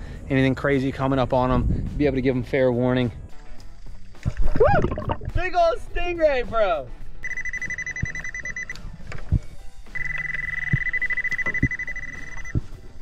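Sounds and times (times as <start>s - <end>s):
metal detector high-pitched tone: 7.2s - 8.8s, 10.0s - 12.7s.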